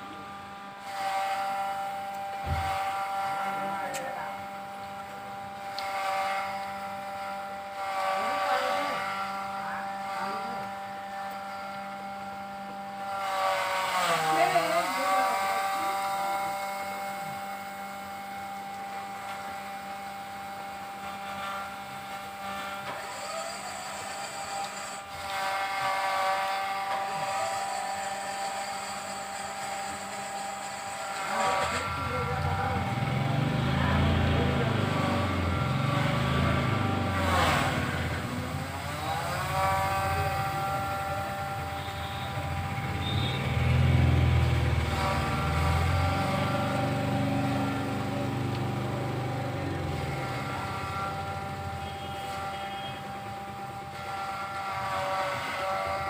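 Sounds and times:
steady machine hum: 0.0 - 56.0
high mechanical whine with hiss: 13.2 - 53.8.

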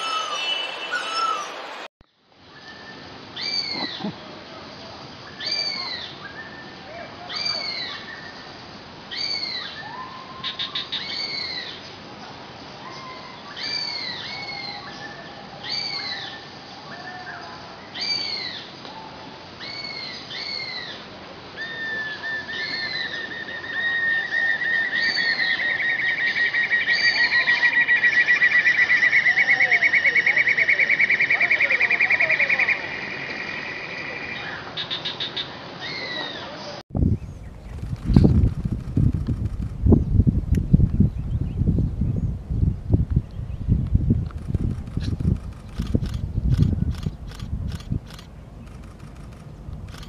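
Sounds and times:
bird whistling and trilling: 0.0 - 1.7.

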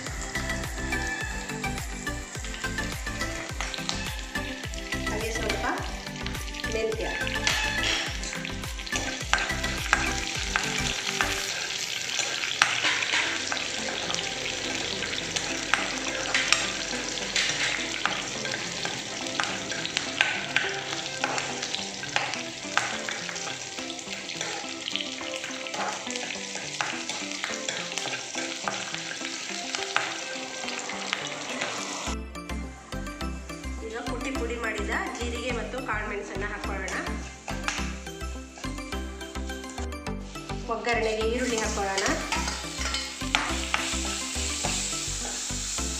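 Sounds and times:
food sizzling in hot oil: 0.0 - 45.9
spoon clicking and scraping pan: 6.5 - 14.2, 15.4 - 30.2, 36.9 - 37.9, 41.4 - 45.5.

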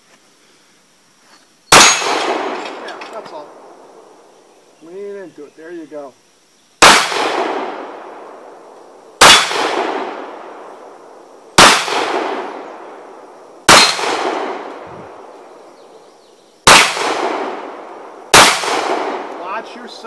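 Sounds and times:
handgun shots with echo: 1.7 - 3.2, 6.8 - 7.8, 9.2 - 10.1, 11.6 - 12.5, 13.7 - 14.7, 16.7 - 17.6, 18.3 - 19.3.

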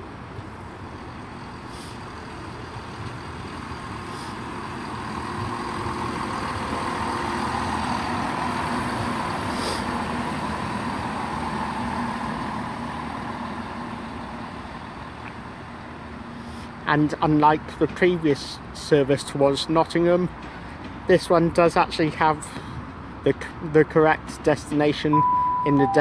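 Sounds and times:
diesel train pulling away: 0.0 - 16.8, 25.0 - 26.0.

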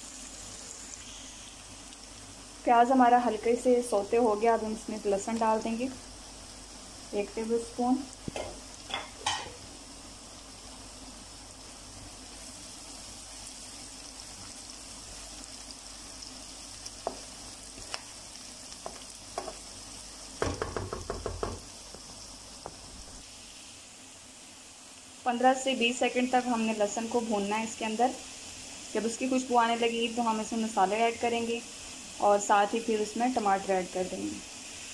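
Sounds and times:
onion and garlic frying in oil: 0.0 - 34.9
utensil knocking against a pan: 20.4 - 22.8.

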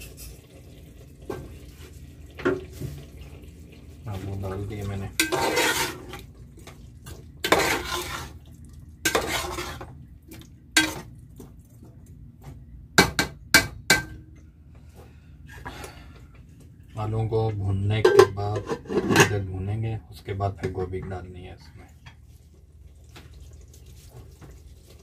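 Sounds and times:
metal spoon scraping pot: 5.2 - 6.1, 7.4 - 8.4, 9.1 - 9.9, 18.0 - 19.4.

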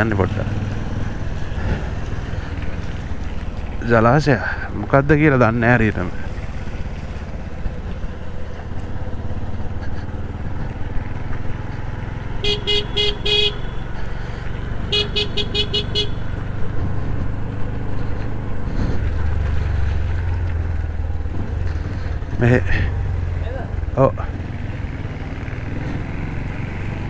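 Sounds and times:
motorcycle engine running: 0.0 - 27.0
vehicle horn tooting: 12.4 - 13.8, 14.9 - 16.4.

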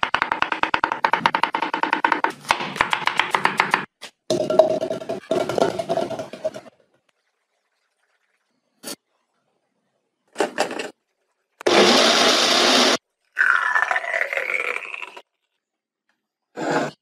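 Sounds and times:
blender running: 11.6 - 13.0.

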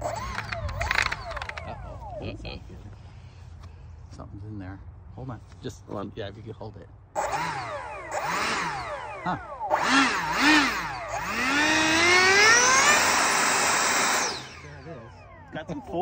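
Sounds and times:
electric ducted fan whining: 0.0 - 3.6, 7.2 - 16.0.

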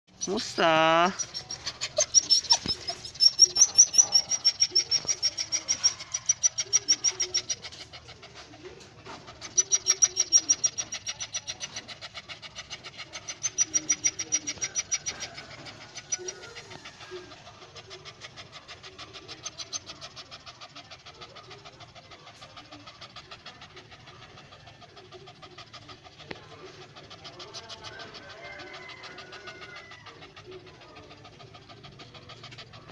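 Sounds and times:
birds calling: 0.1 - 7.8
dogs panting: 0.1 - 32.9.

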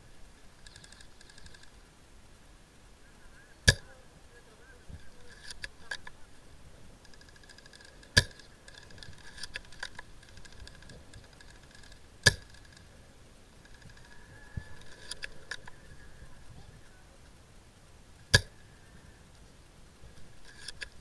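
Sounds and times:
faint pulsing chirr: 0.0 - 21.0
sharp loud cracks: 7.1 - 12.8.

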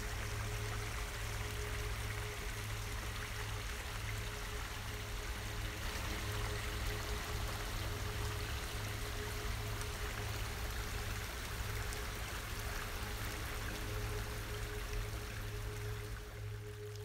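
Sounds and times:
creek water flowing: 0.0 - 17.0.

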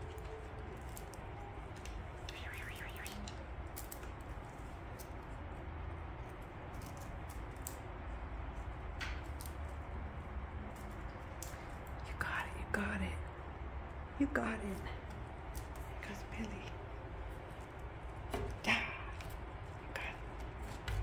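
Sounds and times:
cat toy clicks and rustles: 0.0 - 12.0
low room hum: 0.0 - 21.0.

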